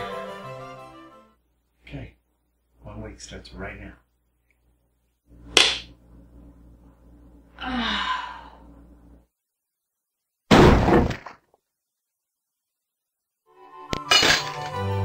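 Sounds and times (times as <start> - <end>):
person sighing: 7.6 - 8.8.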